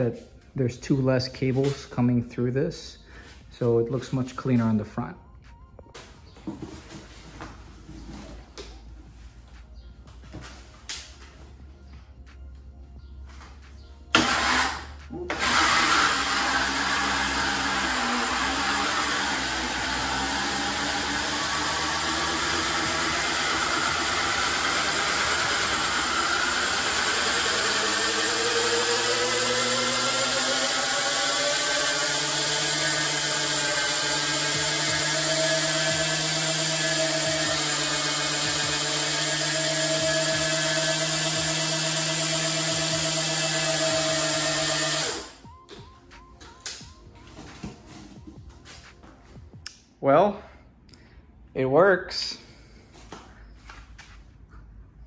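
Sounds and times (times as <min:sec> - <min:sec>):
electric motor and chain whining: 0:14.1 - 0:45.4.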